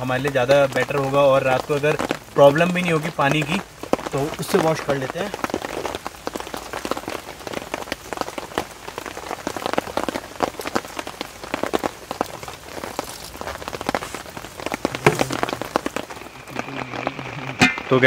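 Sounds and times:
heavy rain on a tent: 0.0s - 18.0s
rice swished in water in bowl: 14.9s - 15.9s.

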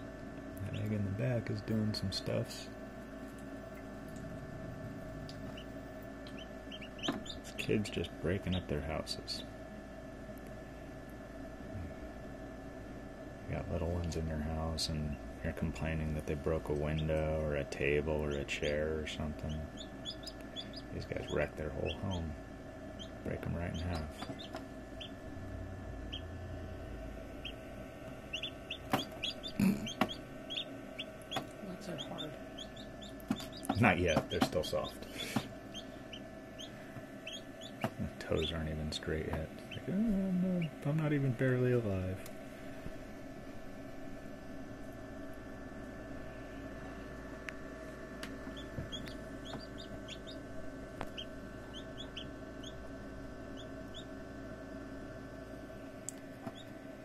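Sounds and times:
steady incubator hum: 0.0s - 57.0s
chicks peeping: 5.1s - 9.4s, 18.0s - 22.3s, 22.9s - 25.2s, 27.4s - 39.9s, 48.5s - 52.9s, 53.5s - 54.2s, 56.4s - 56.7s.

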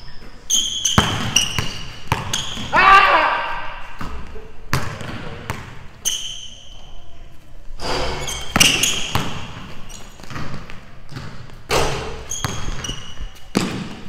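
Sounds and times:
sneakers squeaking on floor: 0.0s - 2.8s, 3.9s - 14.0s
basketball bouncing on wooden floor: 0.8s - 2.7s, 4.0s - 5.8s, 8.4s - 14.0s.

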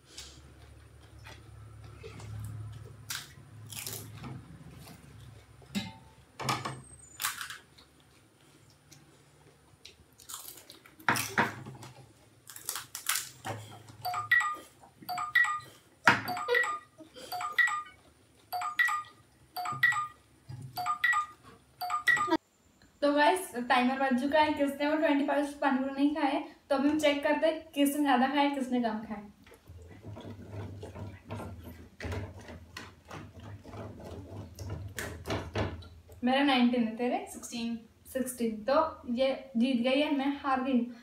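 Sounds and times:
crisp shells crunching: 10.2s - 11.4s, 12.4s - 13.4s
phone timer alarm beeping: 14.0s - 20.2s, 20.8s - 22.4s.

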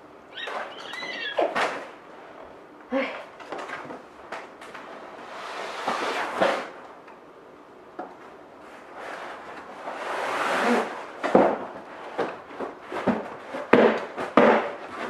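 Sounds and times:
cardboard scraping and rustling: 4.8s - 6.8s, 8.6s - 15.0s.

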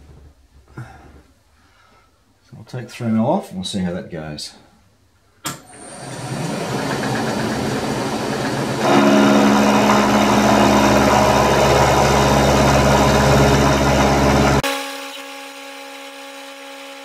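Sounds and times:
milling machine cutting metal: 6.0s - 17.0s.

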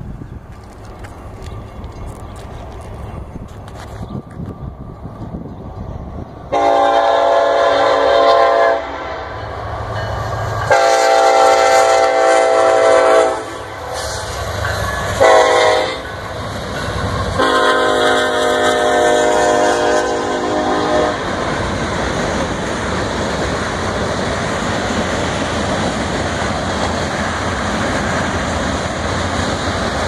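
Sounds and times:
locomotive horn blasts: 6.5s - 9.4s, 10.7s - 14.2s, 15.2s - 16.1s, 17.4s - 21.2s.

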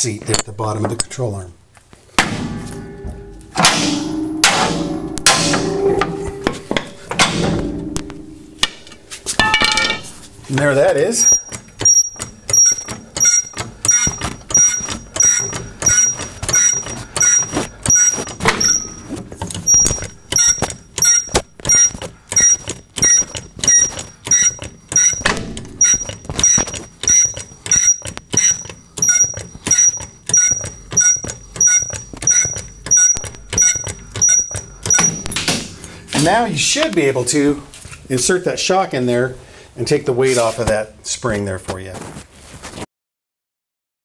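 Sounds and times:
floor jack pumping with metallic ring: 2.4s - 36.9s.

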